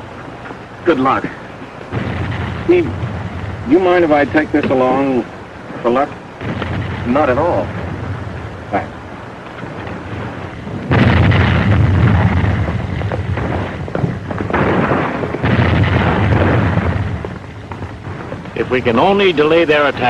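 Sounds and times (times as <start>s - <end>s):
artillery boom rumbling: 1.9s - 5.1s, 6.4s - 19.2s.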